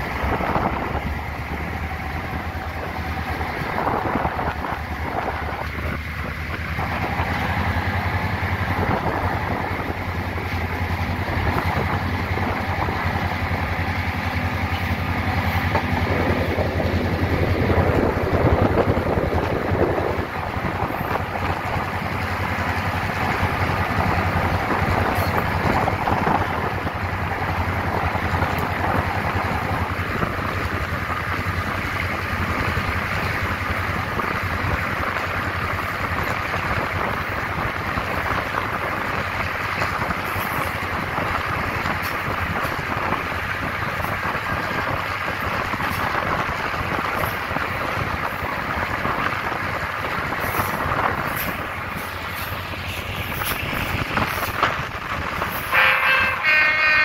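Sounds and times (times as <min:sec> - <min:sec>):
wind rushing past microphone: 0:00.0 - 0:55.7
diesel locomotive engine drone: 0:00.0 - 0:57.0
wheel-on-rail noise: 0:00.0 - 0:57.0.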